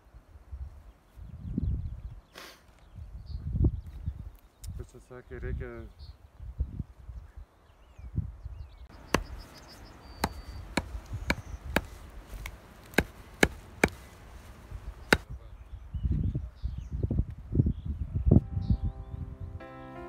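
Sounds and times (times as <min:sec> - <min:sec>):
hatchet chopping onto wood: 0:08.9 - 0:09.4, 0:10.2 - 0:14.1, 0:15.0 - 0:15.3.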